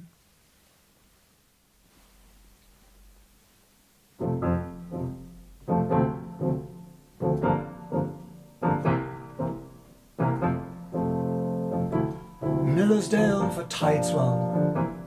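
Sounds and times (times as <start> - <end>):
slow solo piano chords: 4.2 - 15.0.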